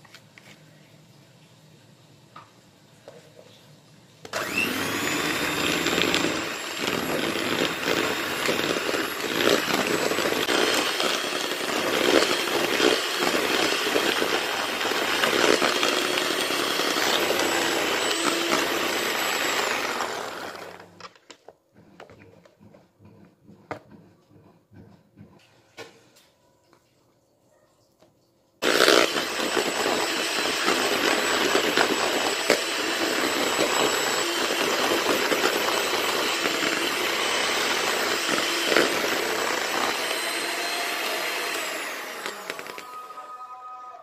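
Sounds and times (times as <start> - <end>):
electric hand mixer whipping: 4.3 - 21.2, 28.6 - 43.4.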